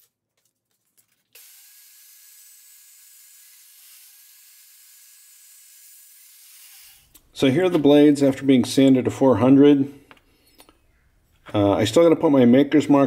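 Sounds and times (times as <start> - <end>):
bandsaw running hiss: 1.4 - 7.1.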